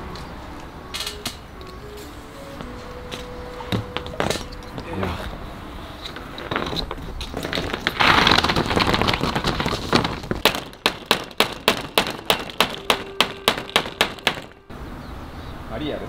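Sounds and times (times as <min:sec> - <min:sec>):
building materials clattering: 0:03.7 - 0:05.0, 0:06.0 - 0:14.7
hammer striking nail into wood: 0:10.4 - 0:14.7.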